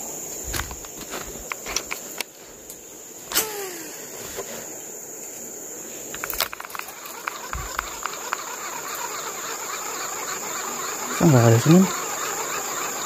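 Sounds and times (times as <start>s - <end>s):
high-pitched insect drone: 0.0s - 13.0s
sharp click with falling tone: 3.3s - 3.8s
small clicks and ticks: 6.1s - 13.0s.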